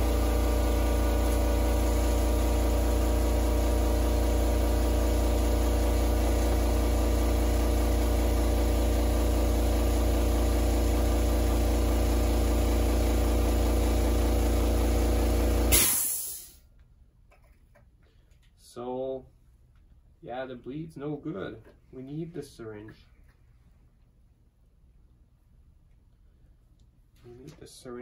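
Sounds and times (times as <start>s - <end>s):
electric pump motor humming: 0.0s - 16.0s.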